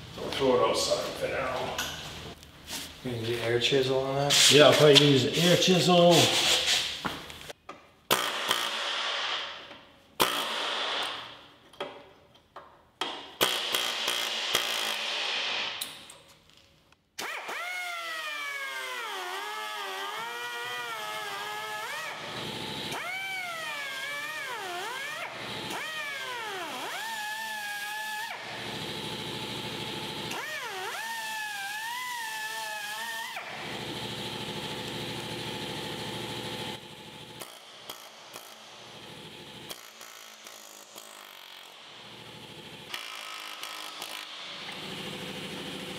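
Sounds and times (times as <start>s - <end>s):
pneumatic air chisel hammering steel: 8.1s - 11.3s, 13.0s - 15.9s, 37.4s - 38.8s, 39.6s - 41.9s, 42.9s - 44.8s.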